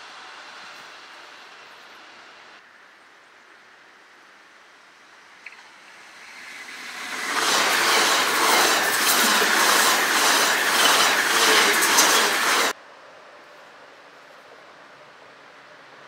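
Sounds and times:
electric train passing: 0:05.6 - 0:12.8
wheels clicking: 0:06.2 - 0:12.8.

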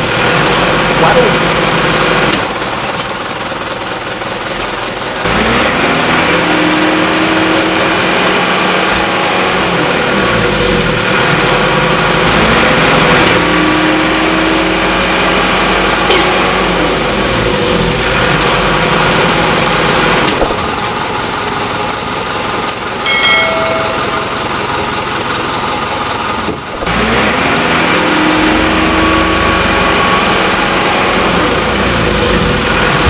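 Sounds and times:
toy truck motor and gears whining: 0:21.6 - 0:22.0.

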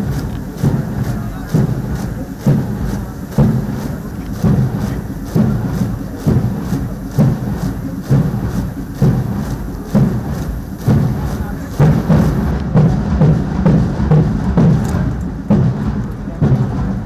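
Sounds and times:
low rumbling wash: 0:00.0 - 0:17.0
marching footsteps thumping: 0:00.0 - 0:17.0.

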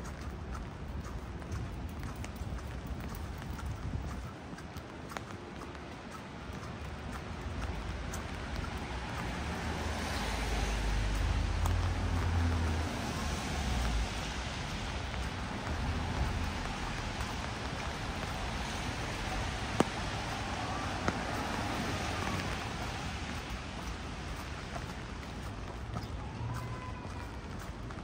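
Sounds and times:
vehicle passing on wet road: 0:06.6 - 0:28.0
rain hissing: 0:11.4 - 0:24.7.

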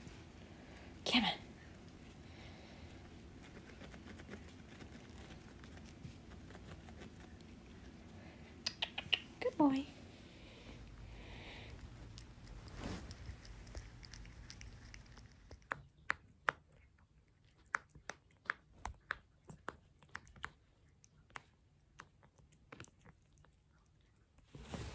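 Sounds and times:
low steady rumble: 0:00.0 - 0:16.4
cat chewing string toy: 0:01.9 - 0:09.1, 0:10.8 - 0:24.6.

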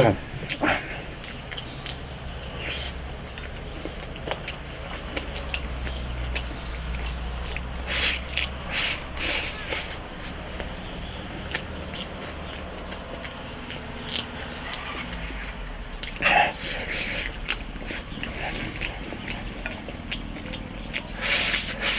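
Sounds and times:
person chewing and smacking: 0:00.4 - 0:21.9.

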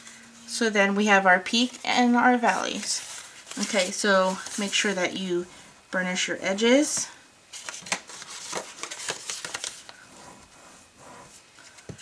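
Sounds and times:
paper rustling: 0:01.6 - 0:05.0, 0:07.5 - 0:10.7.

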